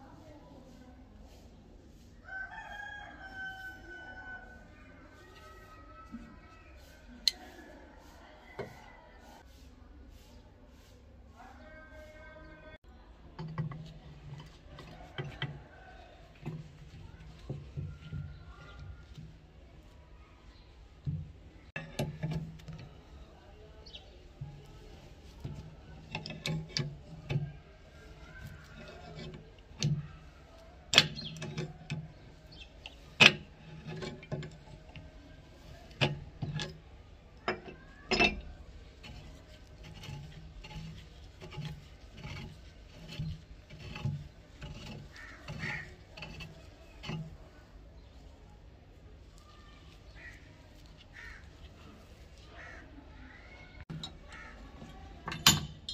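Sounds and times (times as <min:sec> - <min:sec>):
rifle barrel being unscrewed: 0:37.5 - 0:47.4.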